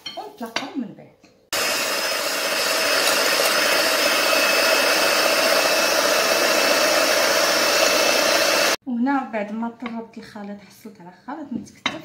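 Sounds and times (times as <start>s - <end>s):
electric hand mixer whirring: 1.5s - 8.8s.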